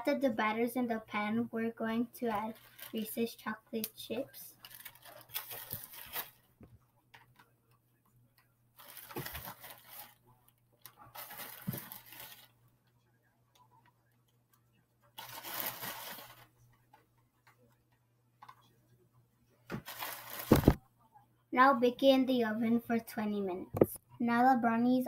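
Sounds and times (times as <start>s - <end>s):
plastic bag crinkling: 2.3s - 3.2s, 4.5s - 6.4s, 8.8s - 10.2s, 10.8s - 12.6s, 15.2s - 16.5s, 19.8s - 20.8s.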